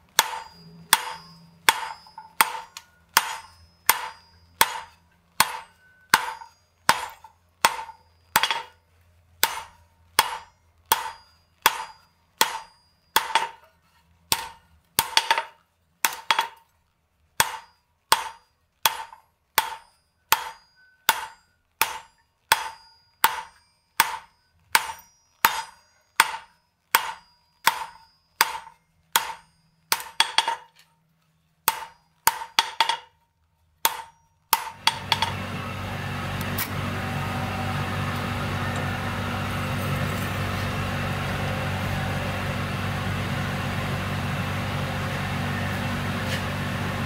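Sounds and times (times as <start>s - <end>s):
hammer striking steel on anvil: 0.0s - 8.8s, 9.4s - 16.7s, 17.4s - 30.9s, 31.6s - 33.2s, 33.8s - 47.0s
forge fire rushing with low hum: 34.9s - 47.0s.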